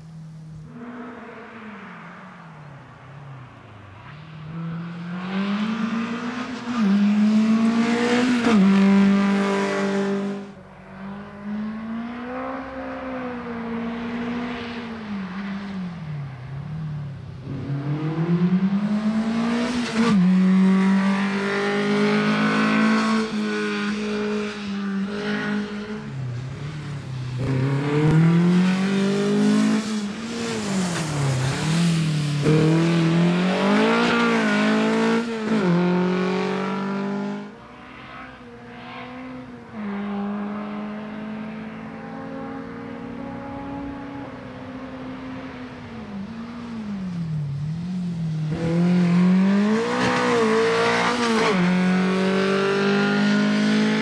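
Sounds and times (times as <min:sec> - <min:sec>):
car engine revving hard: 0:27.4 - 0:38.2, 0:48.5 - 0:54.0.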